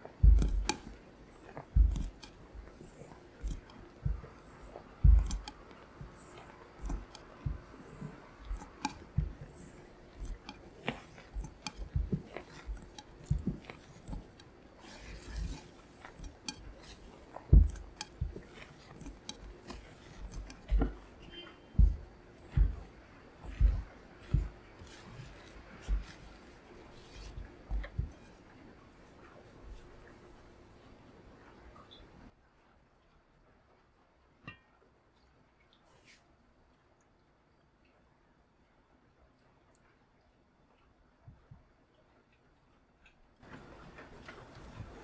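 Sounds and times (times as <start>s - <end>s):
soft thumps and knocks: 0.0s - 30.0s
spatula squelching and scraping batter: 0.0s - 30.5s, 43.4s - 45.0s.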